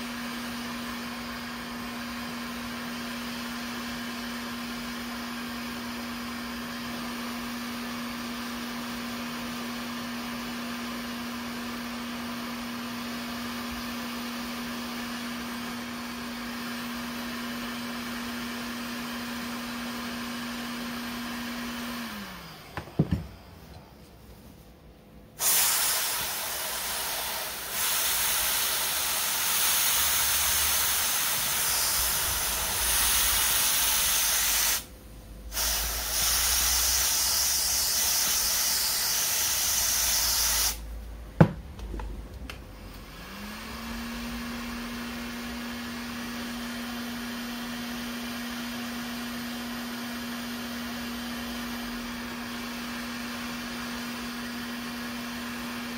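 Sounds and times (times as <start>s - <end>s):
heat gun whirring: 12.1s - 23.8s, 25.4s - 55.9s
aerosol spray hissing: 25.4s - 34.9s, 35.5s - 40.9s.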